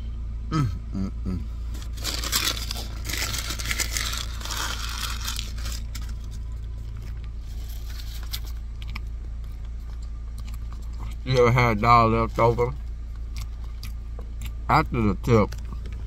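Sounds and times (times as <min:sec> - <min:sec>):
steady low hum: 0:00.0 - 0:16.0
rustling on phone microphone: 0:01.6 - 0:08.7.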